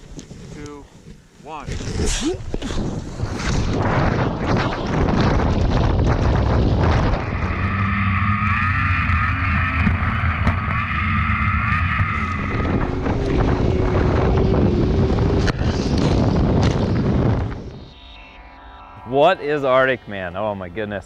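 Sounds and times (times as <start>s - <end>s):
wind rushing over microphone: 1.6s - 18.0s
snowmobile engine whine: 1.7s - 21.0s.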